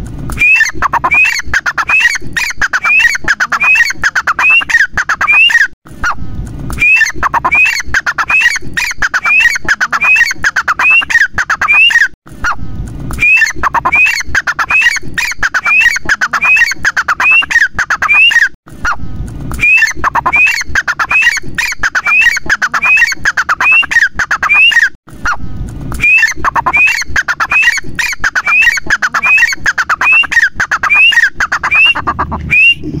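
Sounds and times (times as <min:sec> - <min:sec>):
francolin calling: 0:26.0 - 0:32.8.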